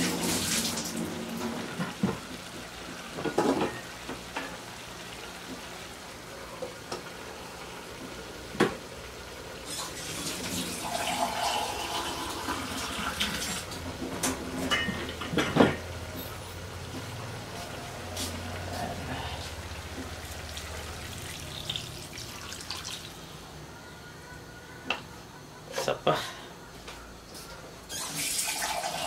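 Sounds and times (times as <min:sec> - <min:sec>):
water pouring into a wok: 0:09.6 - 0:13.7, 0:19.6 - 0:23.3, 0:28.1 - 0:29.0
cookware clanking: 0:14.2 - 0:15.9
running water: 0:18.4 - 0:23.3.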